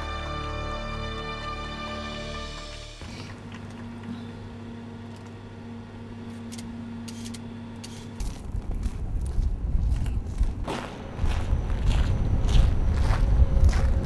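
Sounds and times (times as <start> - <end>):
lift low hum: 0.4 - 14.0
low rumble: 8.2 - 14.0.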